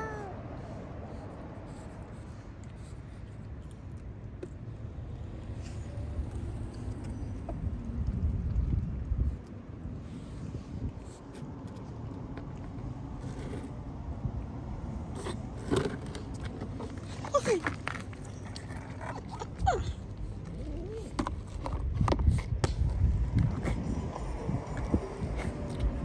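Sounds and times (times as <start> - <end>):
kitten mewing: 0.0 - 0.4
scraping and rustling: 10.1 - 14.0, 15.1 - 24.1.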